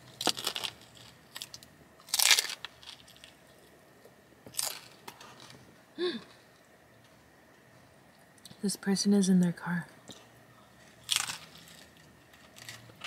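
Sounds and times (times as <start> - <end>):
taco shell crunching: 0.0 - 5.6, 10.1 - 13.0.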